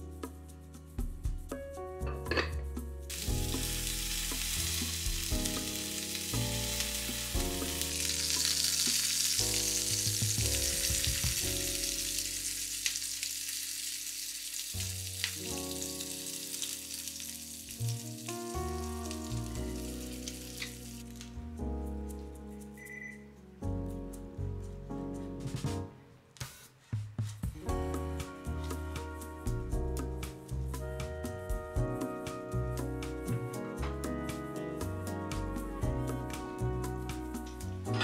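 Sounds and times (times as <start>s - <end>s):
soft background music: 0.0s - 38.0s
food sizzling in a pan: 3.1s - 21.4s.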